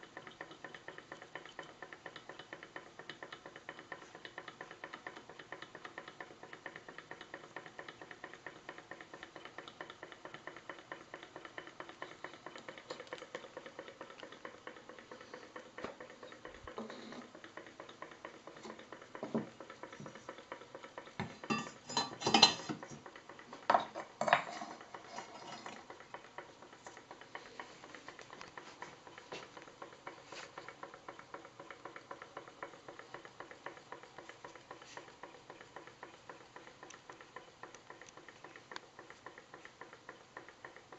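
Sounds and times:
small engine clicking rhythmically: 0:00.0 - 0:40.9
metallic knocks and clatters: 0:21.0 - 0:23.0, 0:23.6 - 0:25.9.

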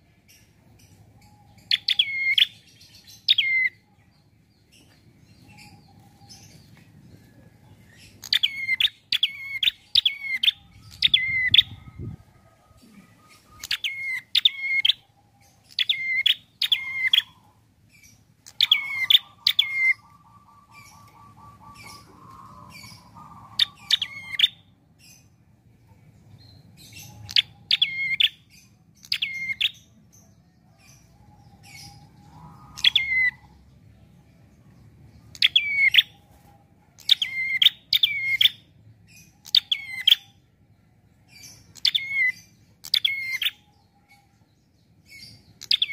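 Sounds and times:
bird singing sharp repeated notes: 0:00.0 - 0:03.8, 0:08.0 - 0:12.2, 0:13.1 - 0:25.3, 0:26.5 - 0:30.3, 0:30.9 - 0:33.7, 0:35.2 - 0:36.2, 0:37.0 - 0:40.5, 0:41.3 - 0:43.9, 0:44.8 - 0:45.9.

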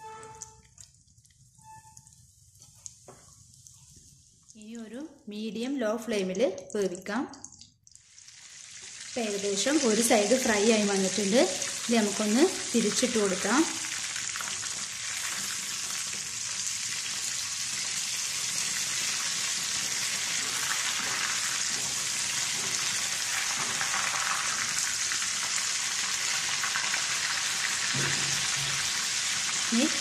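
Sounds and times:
chicken sizzling in hot oil: 0:08.0 - 0:30.0.

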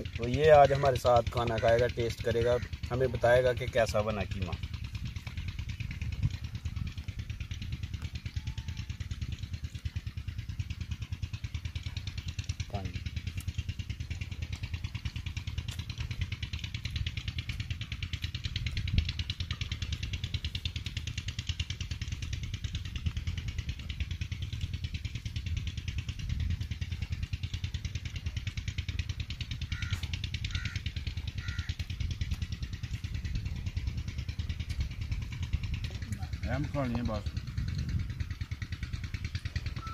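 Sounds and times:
engine idling: 0:00.0 - 0:39.9.

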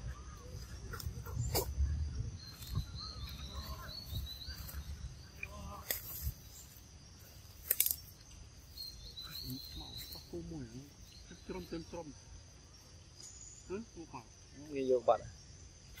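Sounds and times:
sharp clicks: 0:07.6 - 0:08.4.

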